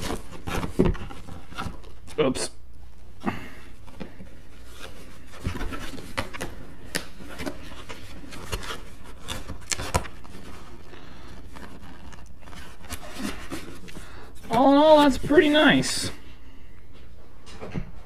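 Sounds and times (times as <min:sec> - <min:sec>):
cardboard rubbing and scraping: 0:00.0 - 0:02.2, 0:07.2 - 0:16.2.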